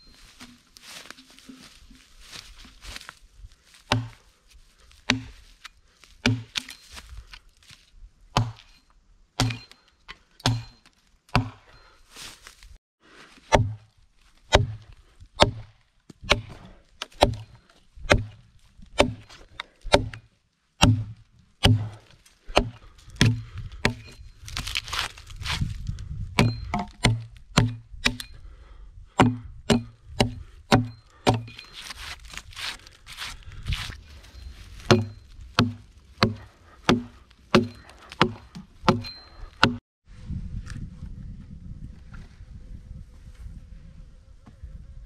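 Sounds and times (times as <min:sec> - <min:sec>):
hatchet chopping log: 0:03.9 - 0:04.2, 0:05.0 - 0:05.5, 0:06.2 - 0:06.8, 0:08.3 - 0:08.8, 0:09.4 - 0:09.8, 0:10.4 - 0:11.7, 0:13.5 - 0:13.9, 0:14.5 - 0:25.7, 0:26.4 - 0:28.4, 0:29.1 - 0:34.0, 0:34.8 - 0:39.8.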